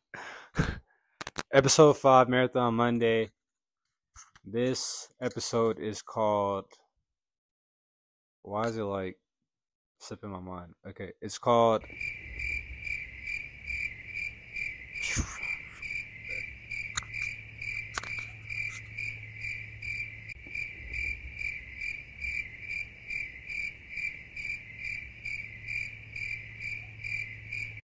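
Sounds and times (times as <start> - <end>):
low steady hum: 11.8 - 27.0
crickets chirping: 11.8 - 27.8.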